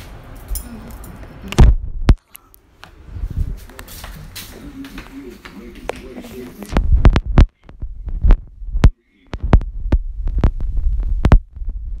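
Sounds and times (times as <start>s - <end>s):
phone microphone handling rumble: 6.6s - 12.0s.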